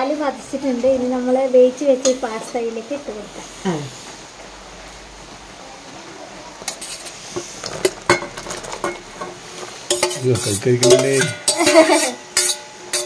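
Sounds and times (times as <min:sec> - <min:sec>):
spoon clinking in a pot: 0:08.1 - 0:13.0.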